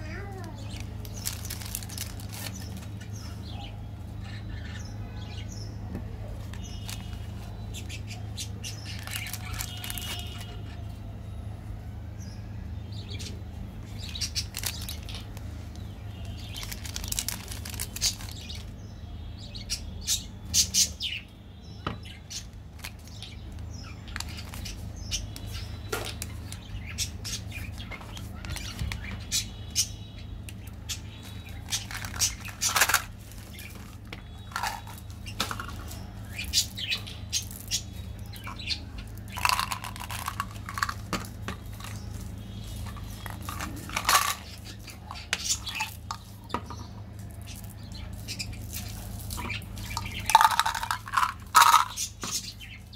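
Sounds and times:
plastic wrappers crinkling: 0:00.1 - 0:03.0, 0:06.4 - 0:07.5, 0:08.8 - 0:10.8, 0:14.0 - 0:18.7, 0:24.1 - 0:24.9, 0:31.2 - 0:36.8, 0:37.4 - 0:46.5, 0:47.2 - 0:52.6.

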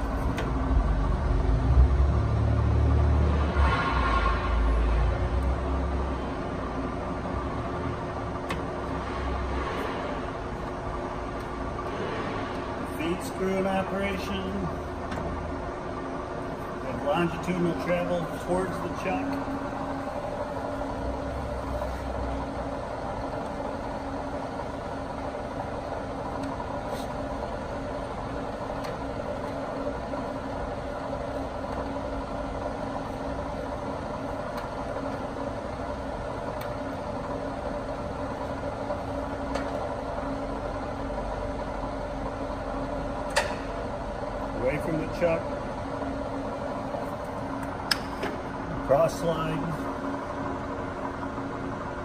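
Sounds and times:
lathe gearing humming: 0:00.0 - 0:52.0.

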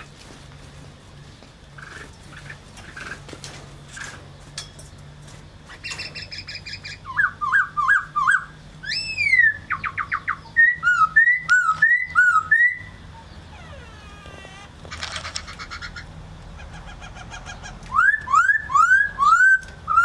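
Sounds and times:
bird chips: 0:00.0 - 0:12.8, 0:14.4 - 0:20.0
bird trill: 0:05.7 - 0:20.0
bird whistles: 0:05.8 - 0:12.9, 0:17.9 - 0:20.0.

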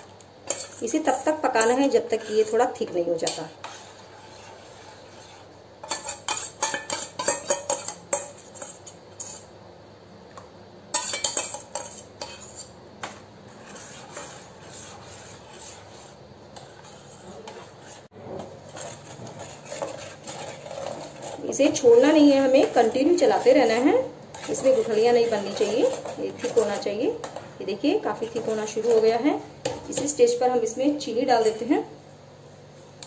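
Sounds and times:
spoon scraping and clinking pan: 0:05.8 - 0:09.5, 0:10.9 - 0:12.8.

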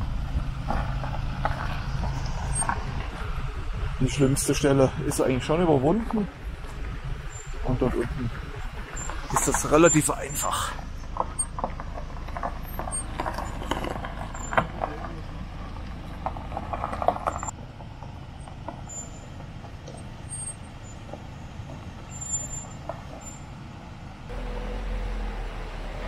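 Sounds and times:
tyres crunching on gravel: 0:00.0 - 0:25.2
low engine rumble: 0:00.0 - 0:26.0.

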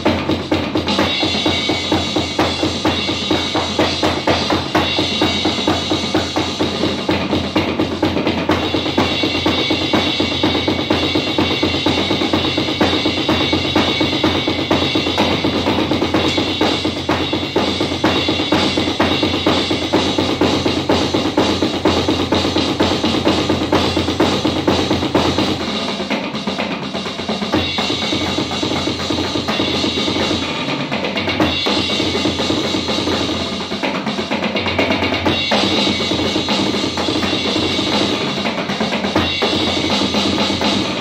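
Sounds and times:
electronic drum kit beat: 0:00.0 - 0:41.0.

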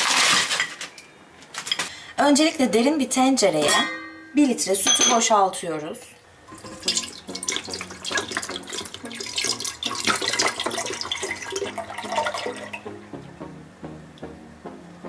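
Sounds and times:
background music: 0:06.4 - 0:15.0
milk pouring into a pot: 0:06.5 - 0:12.8.

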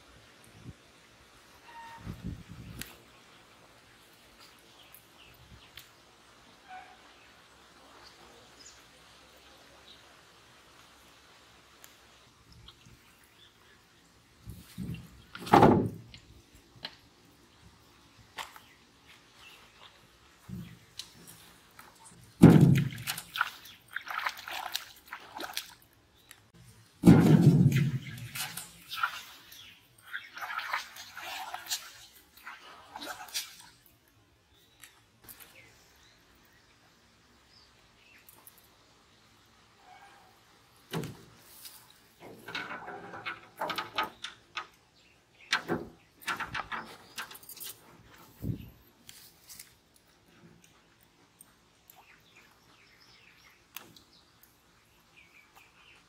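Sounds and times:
knocks and clatters in a boat: 0:22.4 - 0:23.6, 0:27.0 - 0:29.1
fish splashing in water: 0:22.4 - 0:25.8.

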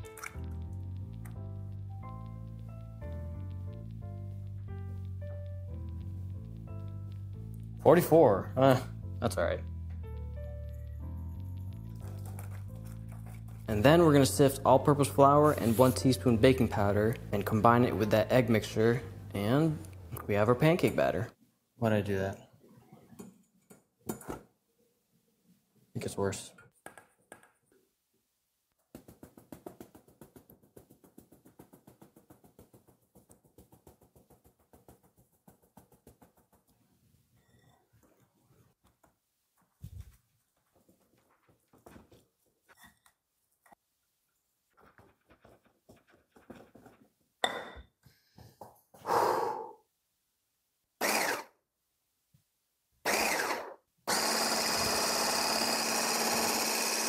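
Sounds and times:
immersion blender whining: 0:51.0 - 0:51.5, 0:53.1 - 0:57.0.

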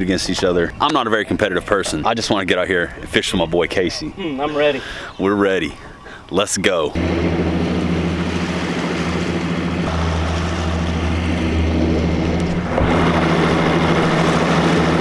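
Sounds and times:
rush of water and wind: 0:00.0 - 0:15.0
outboard motor idling: 0:06.9 - 0:15.0.

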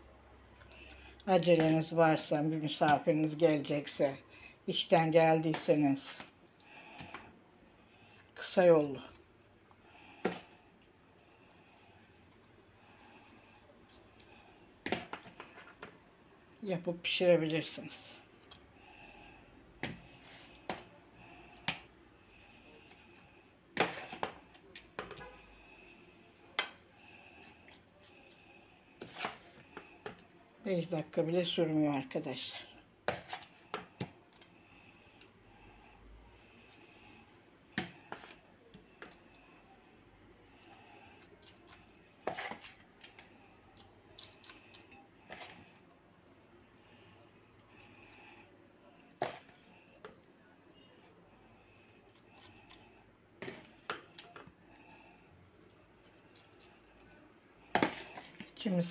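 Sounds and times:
spoon scooping wet filling: 0:40.6 - 0:45.9, 0:47.2 - 0:49.7, 0:51.5 - 0:54.9, 0:55.6 - 0:58.6.

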